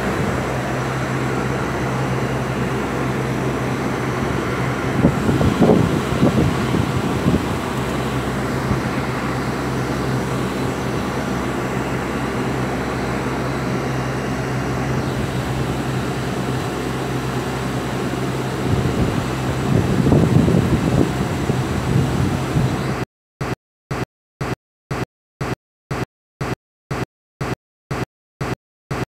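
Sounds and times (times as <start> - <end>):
wind buffeting microphone: 0.0 - 11.6, 18.4 - 23.0
exhaust fan humming: 0.0 - 23.0.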